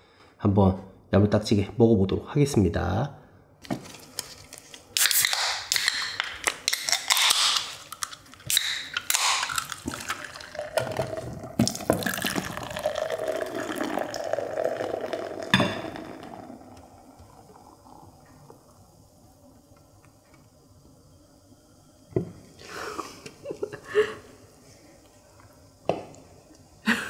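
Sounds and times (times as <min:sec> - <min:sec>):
drink poured into a glass: 0:06.9 - 0:18.9.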